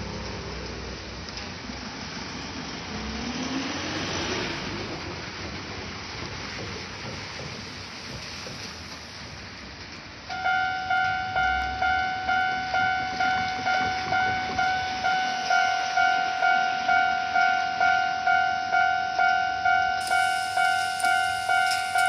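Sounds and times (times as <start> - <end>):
steady rain: 0.0 - 10.3, 20.0 - 22.0
level crossing warning bell dinging: 10.3 - 22.0.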